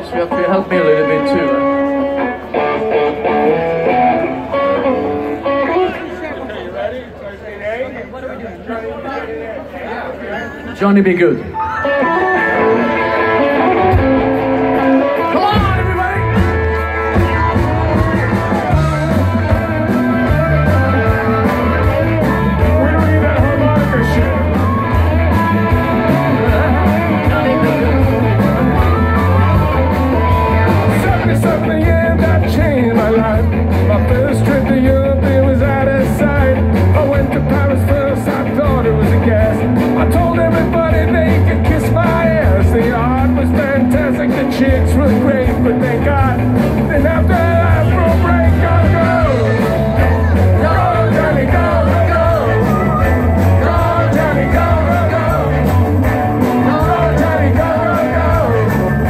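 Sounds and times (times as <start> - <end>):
electric guitars: 0.0 - 6.7, 11.4 - 59.0
steady drum beat: 15.3 - 59.0.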